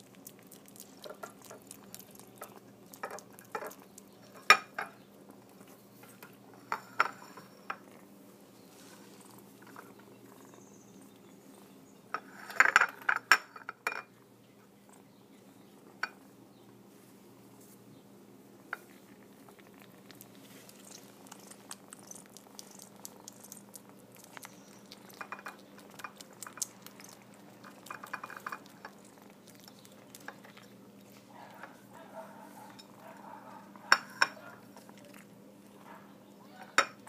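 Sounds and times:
kitten licking and chewing: 0:00.0 - 0:08.1, 0:08.8 - 0:11.7, 0:18.5 - 0:35.9
clinks against a plate: 0:33.9 - 0:34.4.

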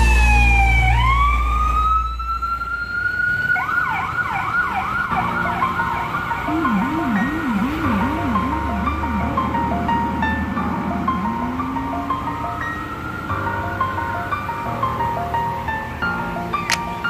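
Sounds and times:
low yelping siren tone: 0:00.0 - 0:13.2
emergency siren wailing and yelping: 0:00.3 - 0:13.2
deep low rumble: 0:06.5 - 0:12.5.

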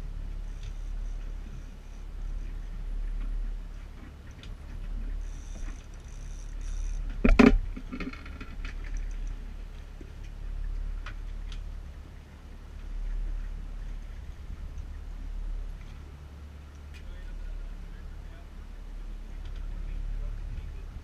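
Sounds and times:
steady low rumble: 0:00.0 - 0:21.0
fishing reel ticking: 0:05.2 - 0:07.4, 0:08.1 - 0:09.4.

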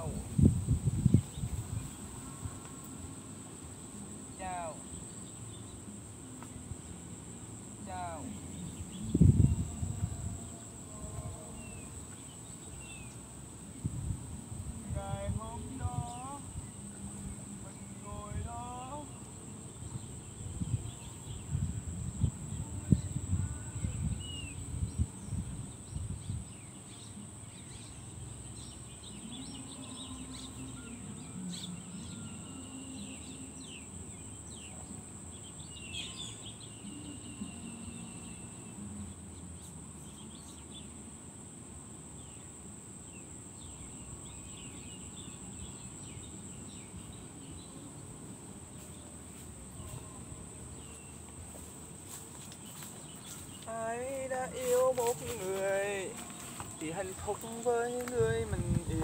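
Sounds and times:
insects droning: 0:00.0 - 0:59.0
birds chirping: 0:14.8 - 0:41.1, 0:42.1 - 0:59.0.

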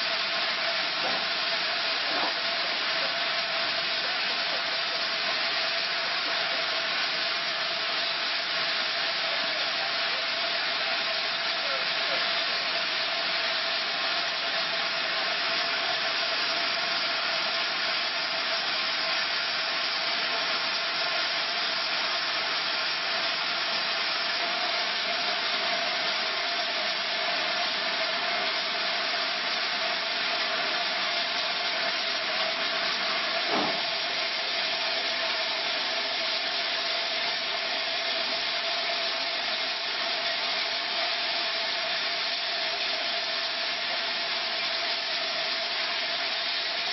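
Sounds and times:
steam hissing from locomotive: 0:00.0 - 0:46.9
brief knock: 0:33.5 - 0:33.8.

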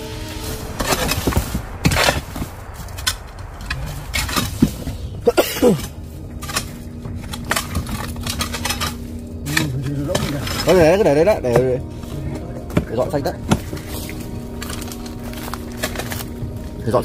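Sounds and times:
short falling whine: 0:00.0 - 0:07.5
steady low hum: 0:00.0 - 0:17.0.

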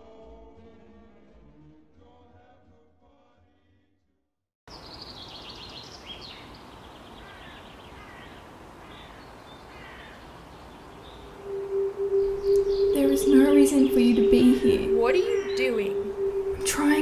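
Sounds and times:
background hiss: 0:04.7 - 0:17.0
birds chirping and trilling: 0:04.7 - 0:17.0
quiet music: 0:11.2 - 0:17.0.

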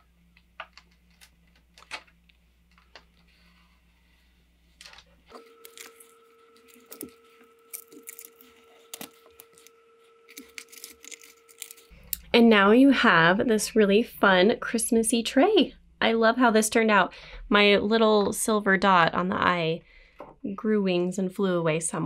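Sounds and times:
tape crinkling and rustling: 0:00.4 - 0:03.4, 0:04.7 - 0:11.9.

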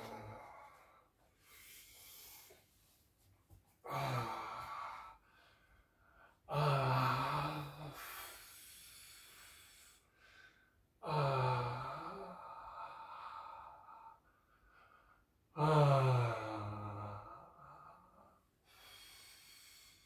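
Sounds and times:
man breathing: 0:00.0 - 0:15.4, 0:16.7 - 0:20.0
man sighing: 0:03.8 - 0:05.1.

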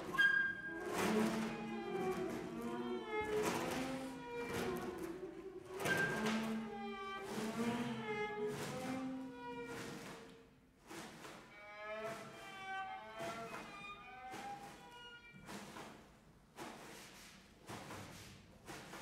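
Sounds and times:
chamber music sliding tones: 0:00.0 - 0:07.6.

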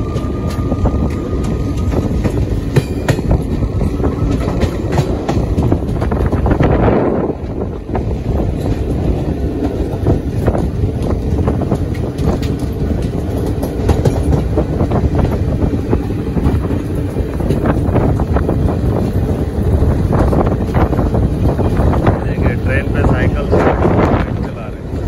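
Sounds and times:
train wheels rumbling on rails: 0:00.0 - 0:25.0
clicks and clacks of rails: 0:04.2 - 0:06.7, 0:09.6 - 0:19.2.

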